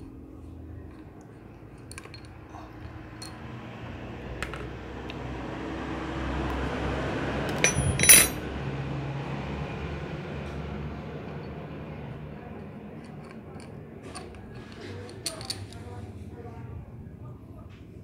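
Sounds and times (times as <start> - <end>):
low background noise: 0.0 - 18.0
ringing metal clinks: 7.6 - 8.4.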